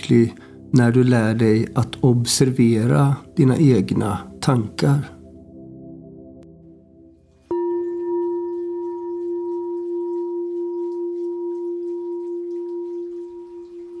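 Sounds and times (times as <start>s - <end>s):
singing bowl ringing: 7.4s - 14.0s.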